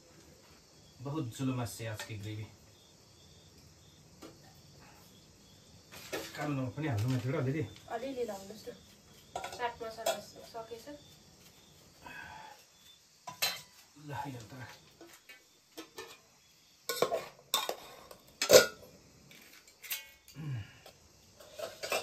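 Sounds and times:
metal spoons clinking on plates: 13.3s - 13.8s, 21.5s - 22.0s.

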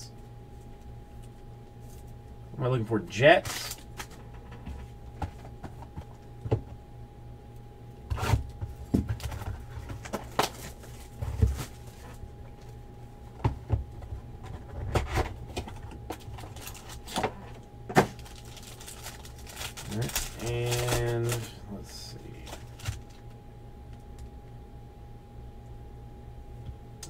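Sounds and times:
cardboard and foil handling noises: 3.4s - 5.8s, 8.2s - 12.8s, 14.5s - 23.3s.

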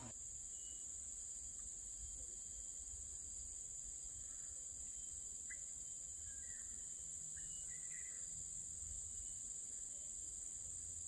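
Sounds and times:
insects chorus: 0.0s - 11.0s
faint chirps: 4.2s - 10.4s.

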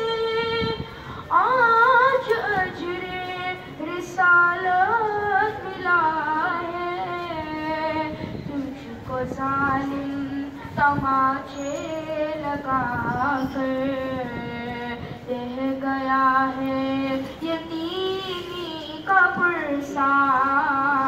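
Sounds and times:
singer breathing: 0.9s - 1.3s.

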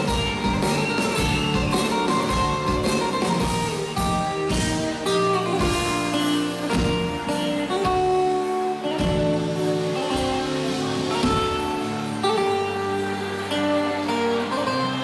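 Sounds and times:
live band playing: 0.0s - 15.0s.

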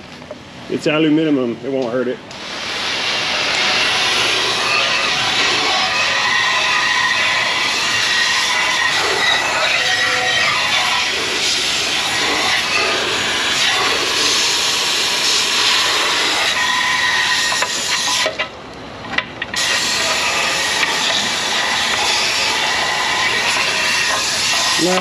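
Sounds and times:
garden hose spraying water: 2.3s - 16.4s.

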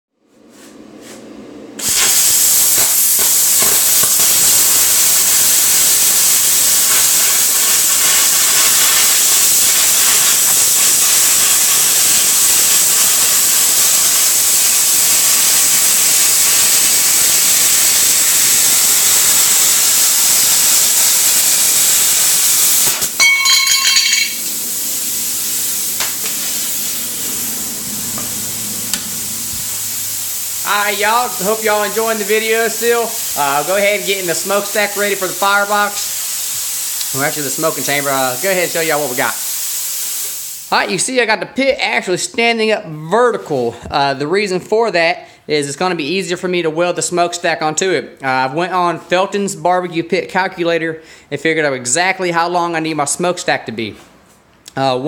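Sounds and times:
rush of air from cutter: 1.8s - 23.2s
plasma cutter hissing: 1.8s - 41.0s
plasma cutter sputter: 1.8s - 41.0s.

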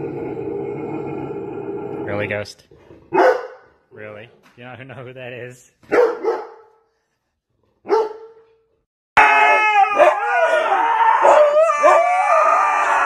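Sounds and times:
dog barking: 3.1s - 3.7s, 5.9s - 6.8s, 7.8s - 8.5s
husky howling: 9.2s - 13.0s.

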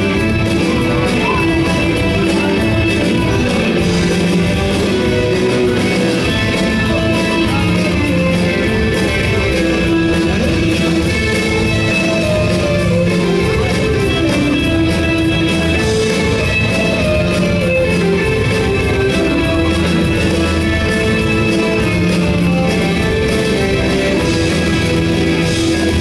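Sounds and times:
drum kit: 0.0s - 26.0s
electric guitars: 0.0s - 26.0s.

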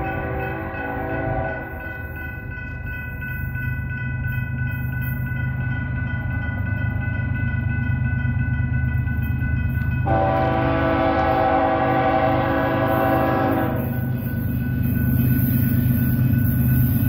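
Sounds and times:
train air horn: 0.2s - 1.8s, 10.0s - 14.0s.

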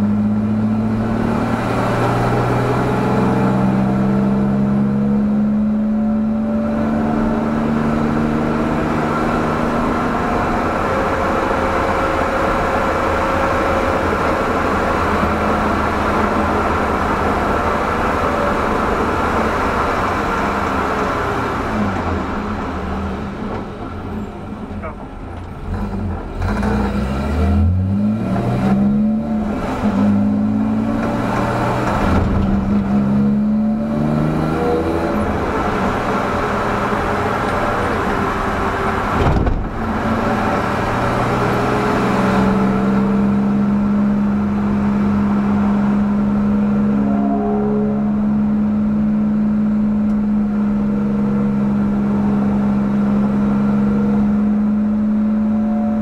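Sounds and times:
car engine at full throttle: 0.0s - 56.0s
sharp thump: 39.2s - 39.8s.

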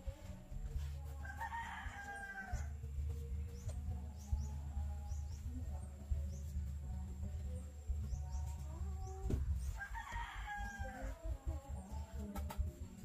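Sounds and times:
rooster crowing: 1.2s - 2.7s, 9.7s - 11.2s.

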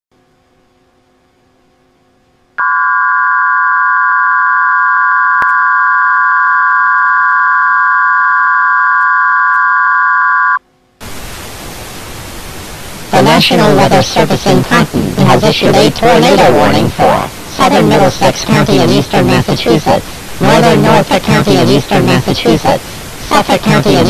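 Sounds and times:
static hiss: 11.0s - 24.0s.

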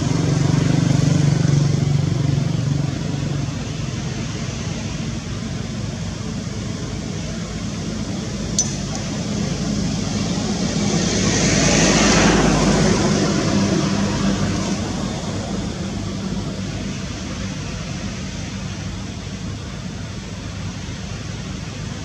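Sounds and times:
sharp click: 8.6s - 9.2s.

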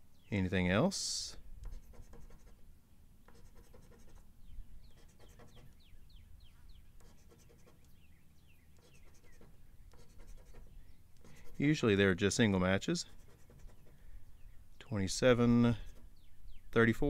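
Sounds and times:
coin scratching lottery ticket: 3.3s - 4.2s, 4.9s - 5.7s, 7.0s - 7.8s, 8.8s - 11.8s, 13.0s - 13.9s.

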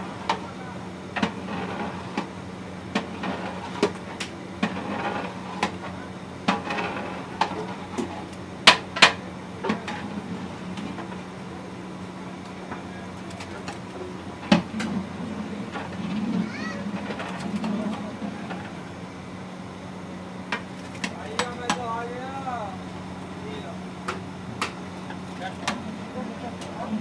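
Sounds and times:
steady low hum: 0.0s - 27.0s
metal spatula scraping cooking pot: 4.6s - 5.6s.

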